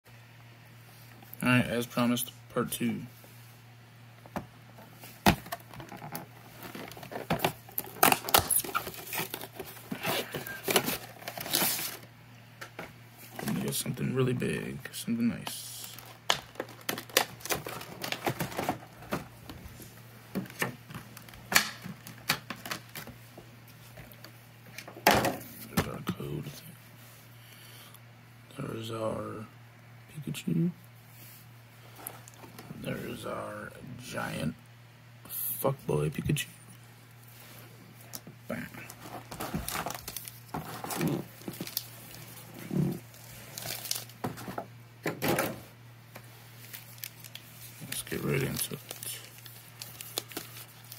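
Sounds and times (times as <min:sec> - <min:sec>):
plastic packaging crackling: 0:05.4 - 0:12.1, 0:15.4 - 0:19.2, 0:38.9 - 0:44.6, 0:46.1 - 0:50.9
plastic tray crackling and clattering: 0:16.0 - 0:19.3, 0:38.9 - 0:45.6.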